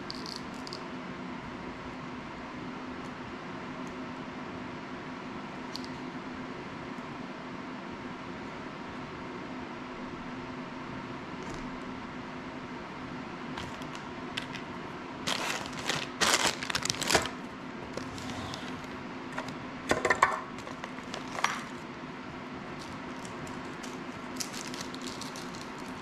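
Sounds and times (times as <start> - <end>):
steady low hum: 0.0 - 26.0
rustling plastic bags: 13.6 - 19.0, 20.6 - 21.9, 22.7 - 26.0.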